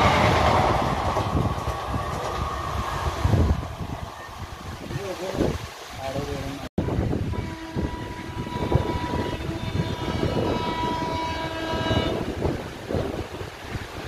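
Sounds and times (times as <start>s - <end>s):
locomotive horn blast: 0.0s - 0.8s, 6.8s - 12.6s.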